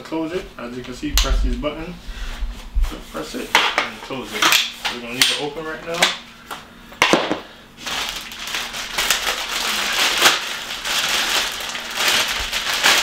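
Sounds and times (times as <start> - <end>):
plastic packaging crinkling: 7.8 - 13.0.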